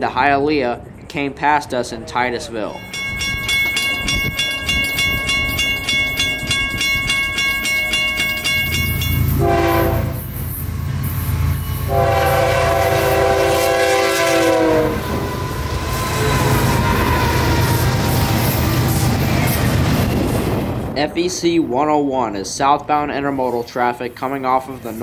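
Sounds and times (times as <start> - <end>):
train engines rumbling: 0.0 - 25.0
rapid regular ringing: 2.8 - 9.4
train horn blasts: 9.1 - 10.4, 11.7 - 18.6.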